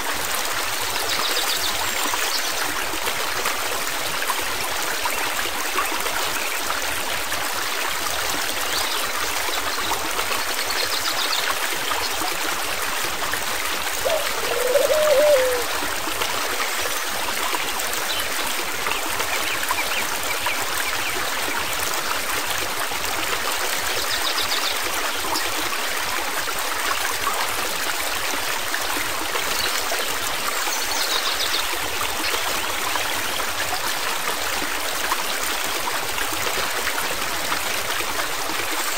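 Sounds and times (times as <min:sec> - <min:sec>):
stream water rushing: 0:00.0 - 0:30.7.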